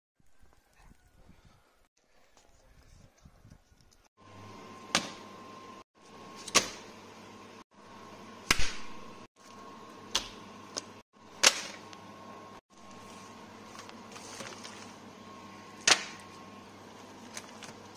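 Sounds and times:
steady low hum: 4.2s - 17.9s.

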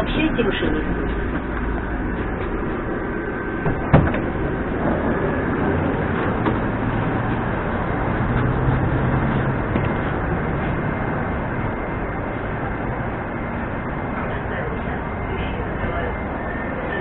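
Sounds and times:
low hum of stopped train: 0.0s - 17.0s
train noise: 0.0s - 17.0s.

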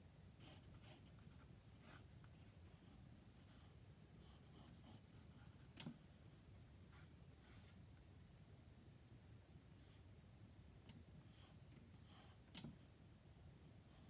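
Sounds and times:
pencil scratching on paper: 0.3s - 7.8s.

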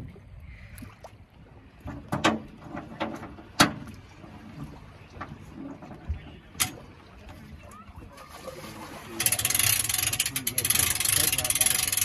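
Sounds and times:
boat knocks and clunks on trailer: 1.8s - 7.0s.

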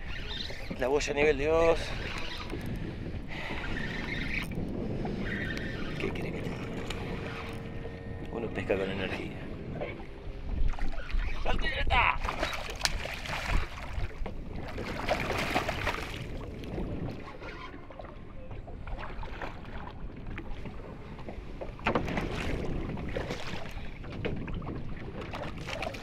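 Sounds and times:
wind and water rushing: 0.0s - 26.0s
fish splashing and thrashing: 9.8s - 17.9s, 21.7s - 26.0s.

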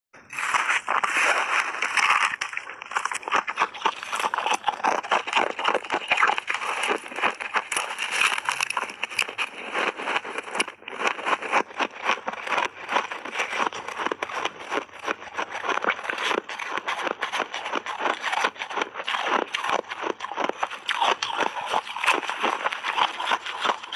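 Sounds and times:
chewing crunchy ice: 0.2s - 23.9s
metal spoon digging into ice: 0.3s - 9.6s.

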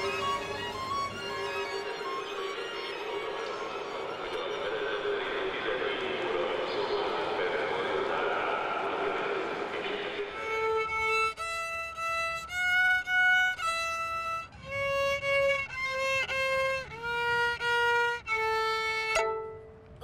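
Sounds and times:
child playing violin: 0.0s - 4.8s, 10.4s - 20.0s.

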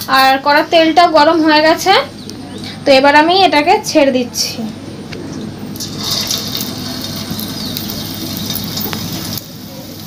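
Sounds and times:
battered potato sizzling in oil: 5.5s - 10.0s.

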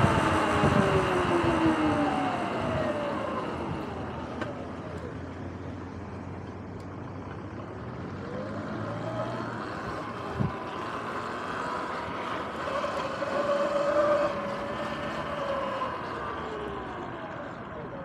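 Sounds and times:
tyre and wind noise: 0.0s - 4.0s
electric motor whining: 9.0s - 17.4s.

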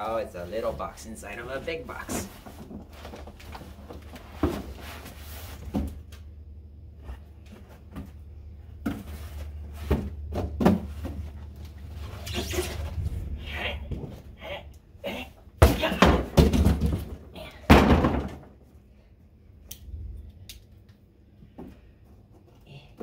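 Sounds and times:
steady low hum: 0.0s - 16.4s
cardboard boxes bumping and scraping: 1.9s - 6.0s, 7.0s - 13.0s, 15.6s - 18.5s.

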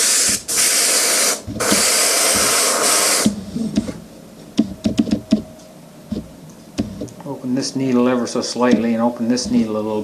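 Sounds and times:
paint sprayer hissing: 0.0s - 3.9s.

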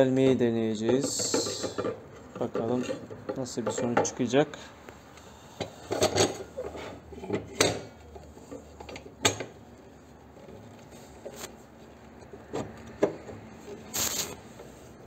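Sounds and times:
metal clunks and scrapes: 0.8s - 4.1s, 5.6s - 9.5s.

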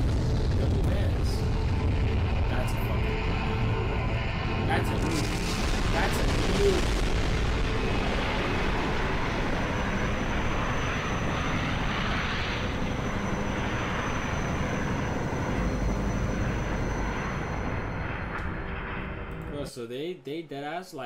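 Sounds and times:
helicopter engine and rotor rumble: 0.0s - 19.6s.

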